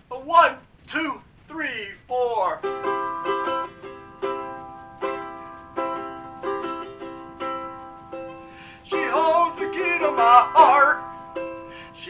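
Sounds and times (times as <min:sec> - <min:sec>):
ukulele strumming: 0:02.6 - 0:12.0.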